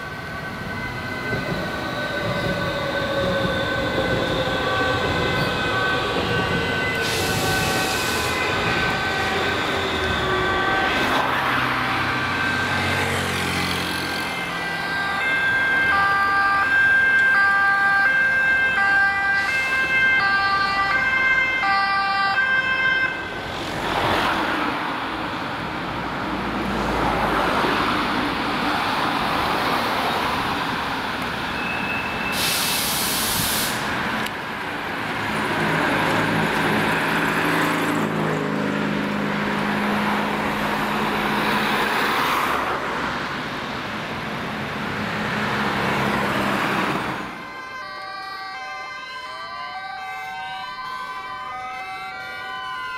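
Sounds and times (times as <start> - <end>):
two-tone emergency sirens: 0.0 - 25.7, 44.7 - 52.9
vehicles driving past: 5.0 - 15.9, 33.6 - 47.6.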